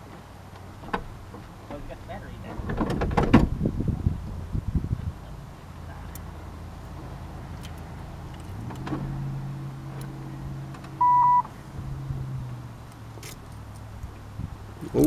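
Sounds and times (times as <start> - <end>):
short loud beep: 11.0 - 11.5.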